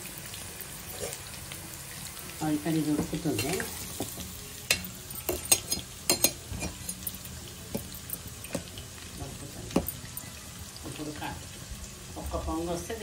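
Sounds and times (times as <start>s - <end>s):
metal spoon scraping steel pot: 3.4s - 7.3s.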